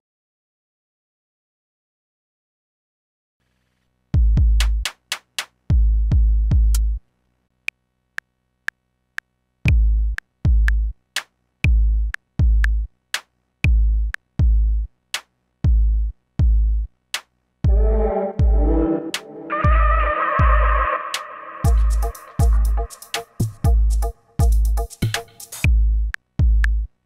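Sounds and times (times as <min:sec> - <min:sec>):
deep kick drums: 0:04.2 - 0:04.9, 0:05.7 - 0:07.0, 0:09.7 - 0:11.0, 0:11.7 - 0:12.9, 0:13.7 - 0:14.9, 0:15.6 - 0:16.9, 0:17.6 - 0:18.7, 0:19.6 - 0:20.8, 0:21.6 - 0:25.0, 0:25.6 - 0:27.0
hi-hat ticks: 0:07.6 - 0:15.4, 0:21.6 - 0:27.0.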